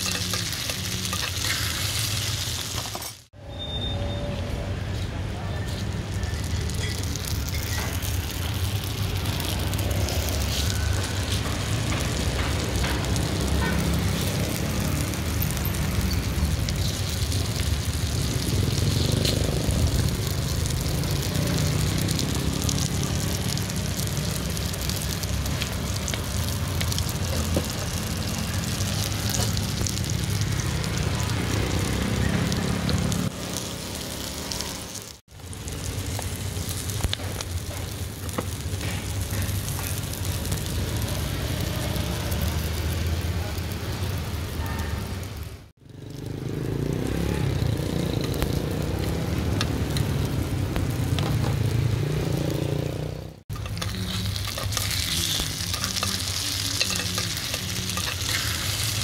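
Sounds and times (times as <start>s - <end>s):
gas burner rumble and hiss: 5.2s - 45.7s, 53.4s - 59.0s.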